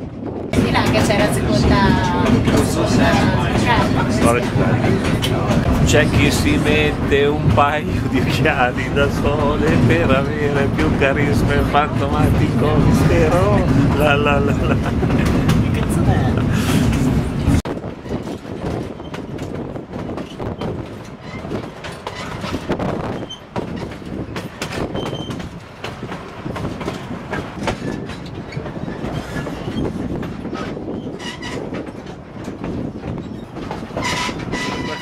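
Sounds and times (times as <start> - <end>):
train cars rumbling: 0.0 - 35.0
wheels clicking over rail joints: 0.6 - 35.0
faint wheel squeals: 24.8 - 25.4.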